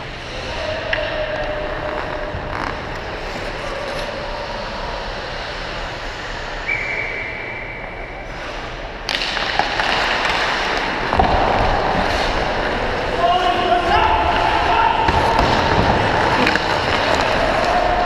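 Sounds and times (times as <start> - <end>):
steady background hum: 0.0 - 18.0
skate blades scraping ice: 8.3 - 18.0
hockey sticks clattering: 9.1 - 18.0.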